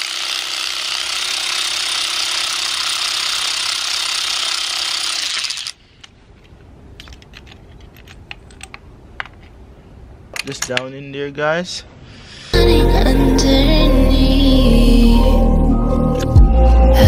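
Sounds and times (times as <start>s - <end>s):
power ratchet running: 0.0s - 5.8s.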